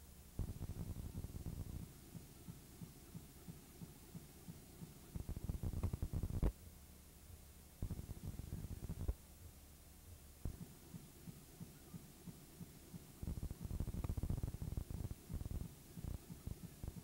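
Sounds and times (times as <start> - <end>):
low buzzing throbbing noise: 0.4 - 2.2, 7.3 - 11.8, 12.6 - 17.0.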